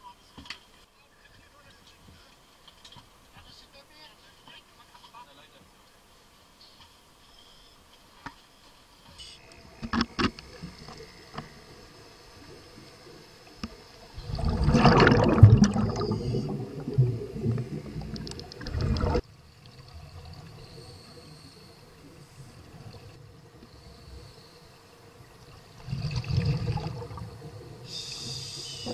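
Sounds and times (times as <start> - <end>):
underwater water rushing and bubbling: 9.6 - 28.9.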